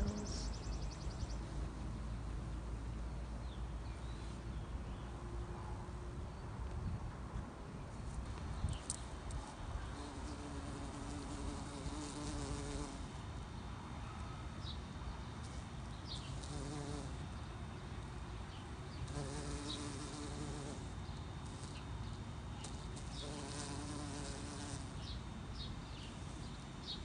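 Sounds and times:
bumblebee buzzing: 0:10.0 - 0:13.0, 0:16.4 - 0:17.2, 0:19.1 - 0:21.8, 0:22.6 - 0:25.0.

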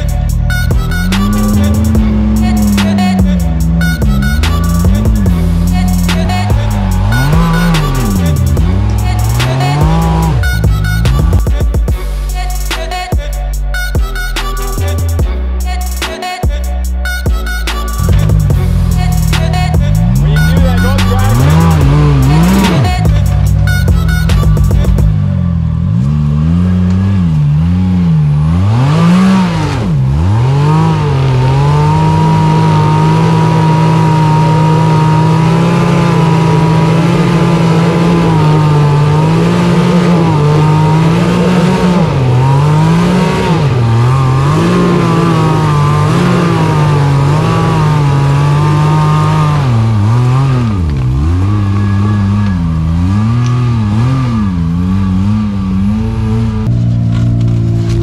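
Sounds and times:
engine revving loudly: 0:00.0 - 0:16.1, 0:17.8 - 0:58.0.

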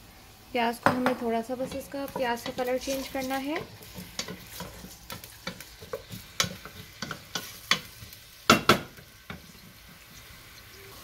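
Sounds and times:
onions sizzling in oil: 0:00.0 - 0:11.0
spatula knocking and scraping pot: 0:00.8 - 0:09.5.

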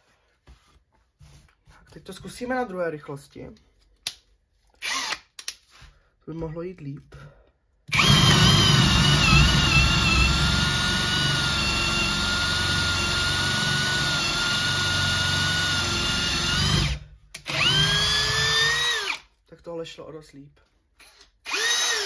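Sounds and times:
drill boring into wood: 0:04.8 - 0:05.2, 0:07.9 - 0:19.3, 0:21.0 - 0:22.0.

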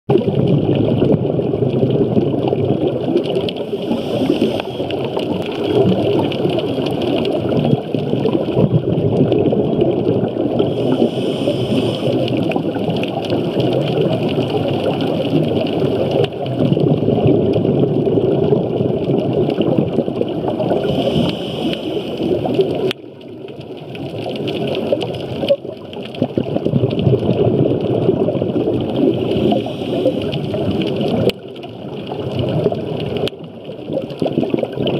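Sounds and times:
underwater scuba bubbles rumbling: 0:00.1 - 0:34.9
regulator hiss: 0:10.7 - 0:12.2, 0:20.8 - 0:22.4.

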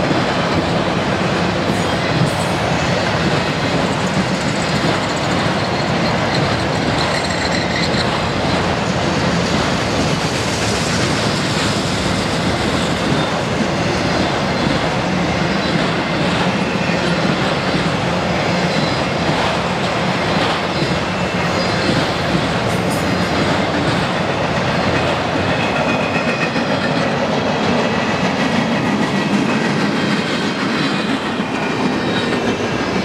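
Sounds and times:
freight train rumbling past: 0:00.0 - 0:33.0
steel wheels clattering on track: 0:00.0 - 0:33.0.

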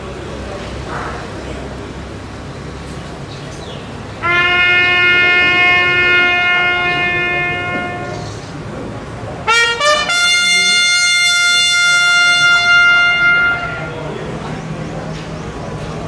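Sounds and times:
bugle call: 0:04.2 - 0:08.4, 0:09.4 - 0:14.4.

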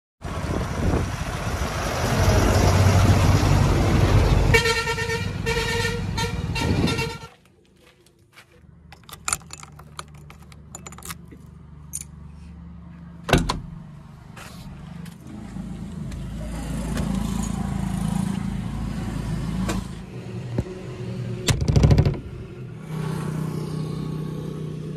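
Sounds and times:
heavy vehicle rumble: 0:00.2 - 0:07.4, 0:08.4 - 0:24.9
vehicle horn: 0:04.5 - 0:07.4.

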